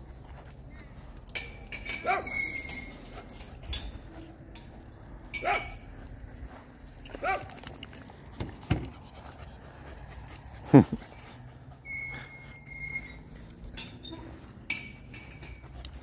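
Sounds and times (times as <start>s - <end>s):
dog barking high-pitched: 1.9s - 2.7s, 5.4s - 5.8s, 7.2s - 7.6s.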